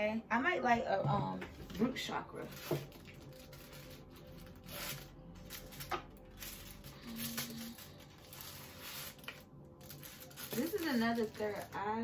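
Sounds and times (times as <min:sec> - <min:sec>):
soft handling of small objects: 0:02.4 - 0:11.9.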